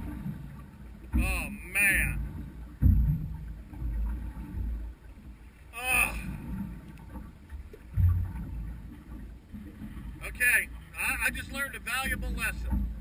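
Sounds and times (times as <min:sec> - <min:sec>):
low thump: 0:00.0 - 0:04.9, 0:06.2 - 0:09.2, 0:12.6 - 0:13.0
water slapping boat hull: 0:00.0 - 0:13.0.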